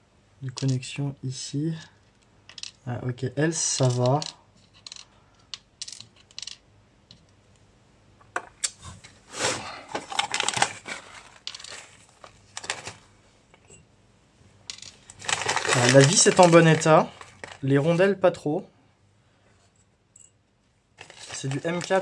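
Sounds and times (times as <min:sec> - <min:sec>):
screw and washers clicking: 0:03.8 - 0:07.4.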